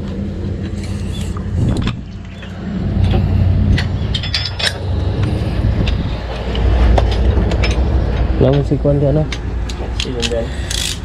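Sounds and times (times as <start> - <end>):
engine running: 0.0 - 11.0
sharp metallic clinks: 3.8 - 4.9.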